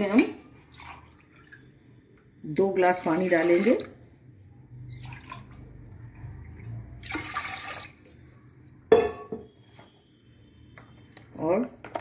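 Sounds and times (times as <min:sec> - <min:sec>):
water splashing into pot: 0:00.6 - 0:04.0, 0:04.7 - 0:09.3.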